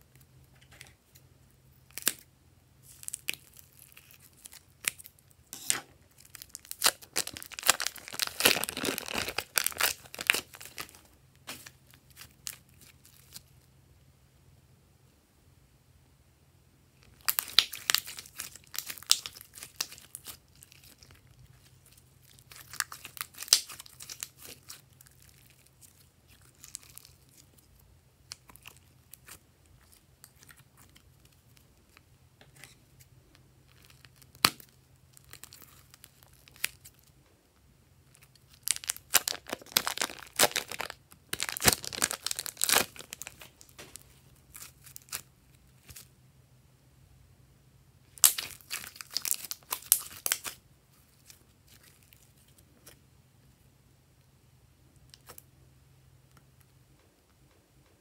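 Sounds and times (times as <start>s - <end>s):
faint low hum: 0.0s - 58.0s
slime crackling and popping: 1.8s - 13.5s, 17.0s - 32.0s, 33.6s - 37.1s, 38.0s - 46.1s, 48.1s - 52.5s.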